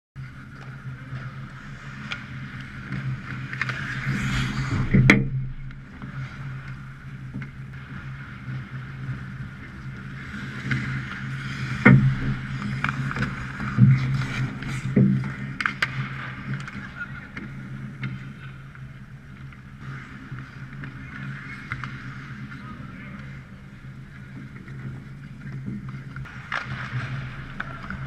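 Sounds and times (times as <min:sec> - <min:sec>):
steady low hum: 0:00.2 - 0:10.4
skate blades scraping ice: 0:00.2 - 0:28.0
hockey sticks and puck knocking: 0:00.4 - 0:22.4, 0:24.2 - 0:28.0.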